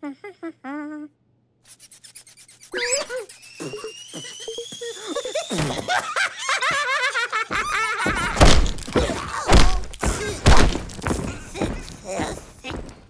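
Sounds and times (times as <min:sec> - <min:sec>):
warbling cartoon voices: 0:01.7 - 0:05.7
rising whistle-like tone: 0:02.8 - 0:06.0
heavy thuds: 0:07.6 - 0:13.0.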